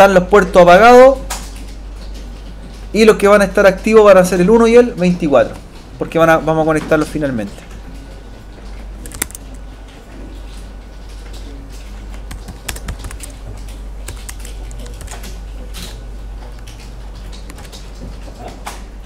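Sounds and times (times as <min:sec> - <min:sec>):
steady low hum: 0:00.0 - 0:19.0
computer keyboard typing: 0:09.0 - 0:09.6, 0:11.2 - 0:18.5.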